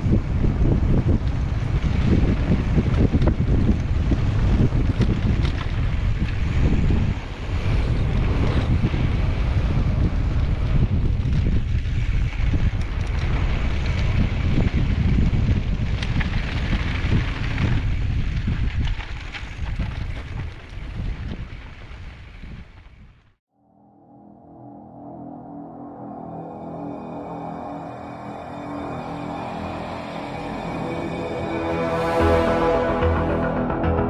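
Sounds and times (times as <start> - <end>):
wind buffeting microphone: 0.0 - 23.3
bike clicks and rattles: 11.2 - 22.2.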